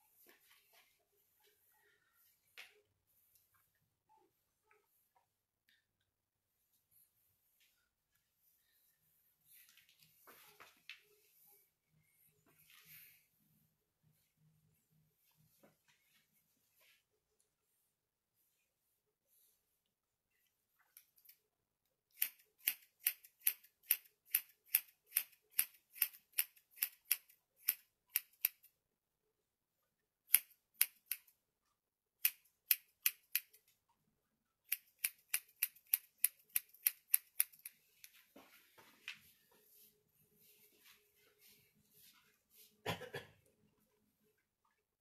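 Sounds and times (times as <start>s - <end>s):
scissors snipping hair: 20.9s - 21.4s, 22.1s - 28.7s, 30.3s - 31.4s, 32.2s - 33.7s, 34.6s - 38.2s.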